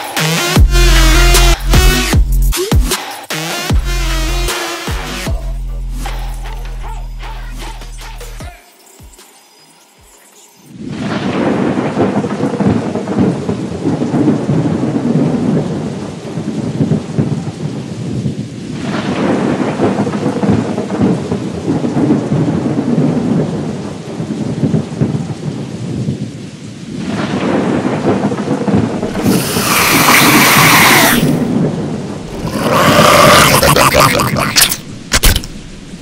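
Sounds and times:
steady rain: 0:09.7 - 0:36.0
rolling thunder: 0:10.8 - 0:36.0.

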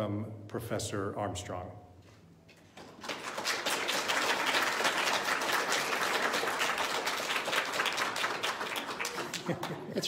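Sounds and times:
audience applauding: 0:02.8 - 0:10.0.

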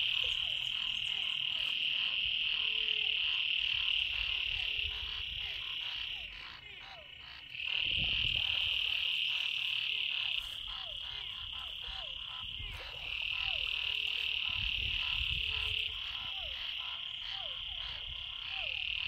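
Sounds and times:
frogs trilling: 0:00.0 - 0:19.0
short rising frog calls: 0:00.0 - 0:19.0.

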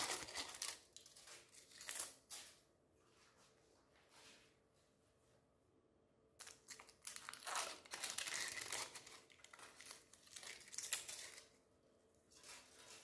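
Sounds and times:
wrapper crinkling and tearing: 0:00.0 - 0:02.3, 0:06.4 - 0:11.6.

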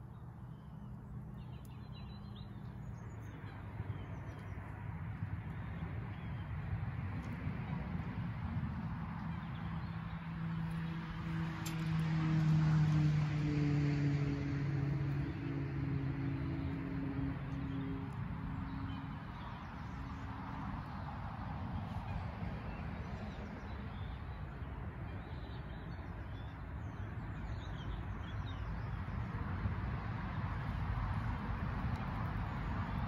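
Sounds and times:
vehicle engine hum: 0:00.0 - 0:25.8.

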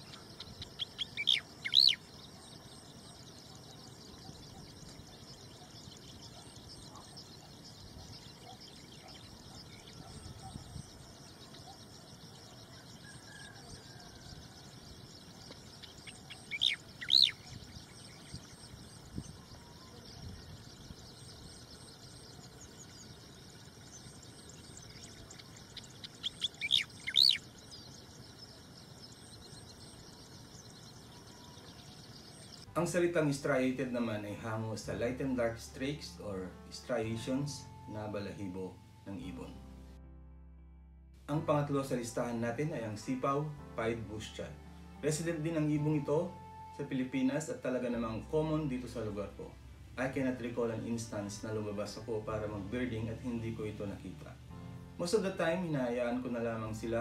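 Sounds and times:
bird singing high notes: 0:00.0 - 0:14.2, 0:15.2 - 0:39.9.

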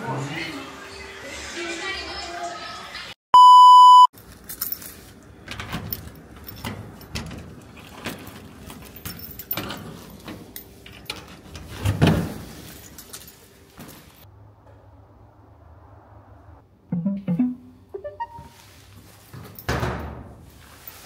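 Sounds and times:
metal door and lock rattling: 0:04.5 - 0:13.4, 0:19.4 - 0:20.4.

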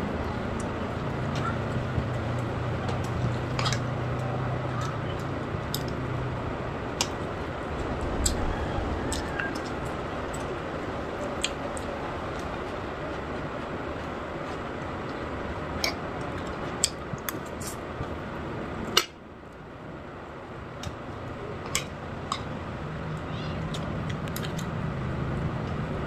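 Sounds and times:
low hum: 0:00.0 - 0:15.6.

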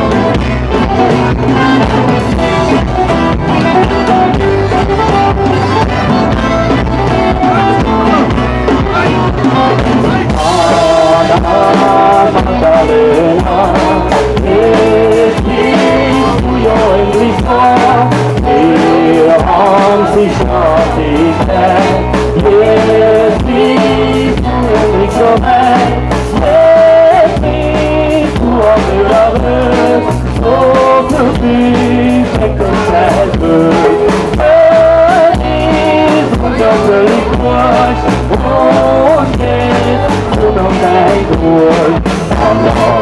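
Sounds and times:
acoustic guitars: 0:00.0 - 0:43.0
drum kit: 0:00.0 - 0:43.0
woman singing: 0:10.2 - 0:43.0.

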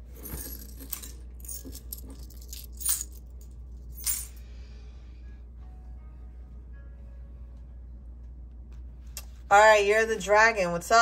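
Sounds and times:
charms clinking on tabletop: 0:00.1 - 0:04.4.

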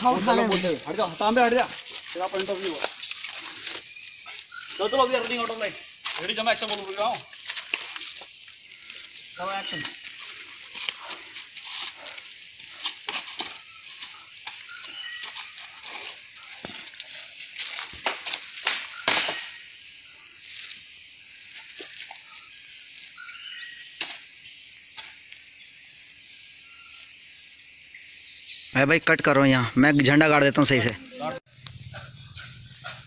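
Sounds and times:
insects chirring: 0:00.0 - 0:33.0
footsteps through dry leaves: 0:01.6 - 0:08.2, 0:10.0 - 0:18.6
sharp crackles and knocks: 0:15.2 - 0:19.5.

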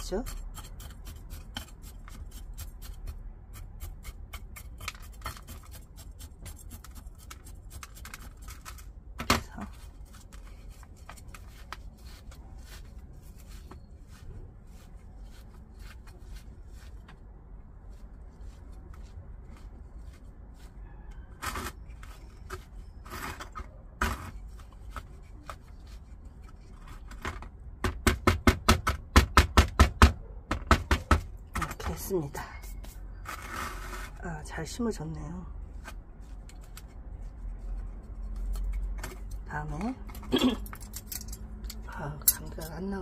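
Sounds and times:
gritty soil clicking in ceramic pot: 0:00.0 - 0:13.9.

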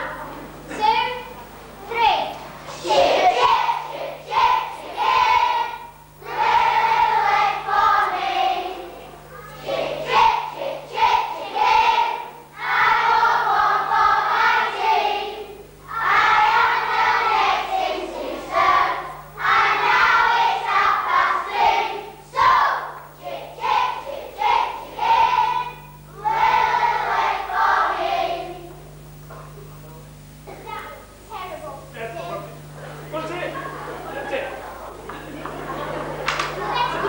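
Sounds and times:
faint low hum: 0:00.0 - 0:37.0
children singing together: 0:02.7 - 0:28.8.

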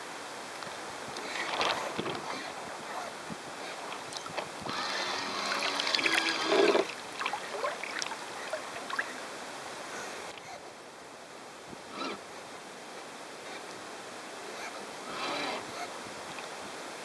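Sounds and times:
water rushing along boat hull: 0:00.7 - 0:10.4, 0:13.4 - 0:17.0.

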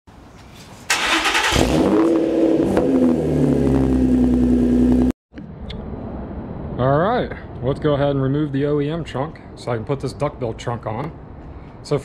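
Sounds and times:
car engine starting and revving: 0:00.9 - 0:05.1.

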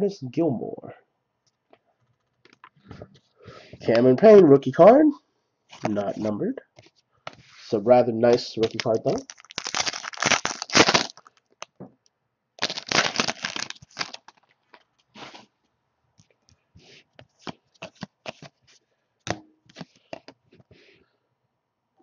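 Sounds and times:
trading cards rustling: 0:07.3 - 0:11.4, 0:12.6 - 0:14.5, 0:17.2 - 0:18.8, 0:19.7 - 0:20.3.

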